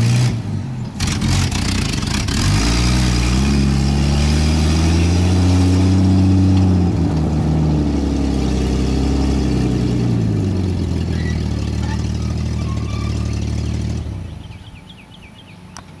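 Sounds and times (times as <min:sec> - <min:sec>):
truck engine running: 0:00.0 - 0:16.0.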